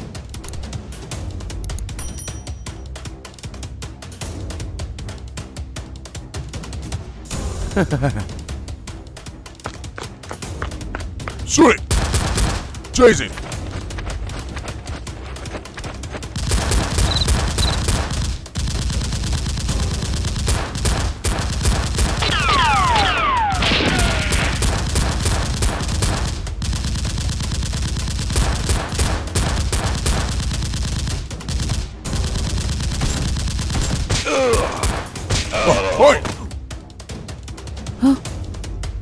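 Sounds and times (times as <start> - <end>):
person shouting: 11.5 - 11.8, 13.0 - 13.4, 35.5 - 36.4
automatic gunfire: 16.4 - 35.1.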